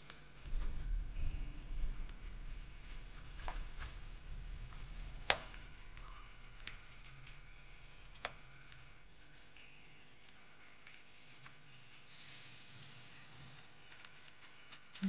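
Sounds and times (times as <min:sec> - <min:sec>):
faint low rumble: 0:00.2 - 0:10.8.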